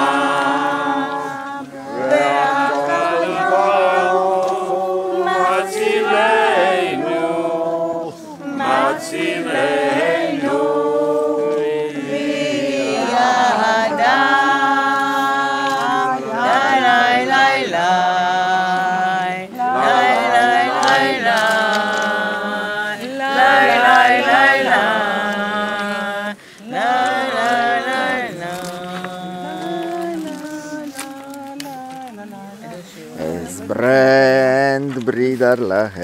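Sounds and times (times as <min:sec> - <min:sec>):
group singing unaccompanied: 0:00.0 - 0:34.8.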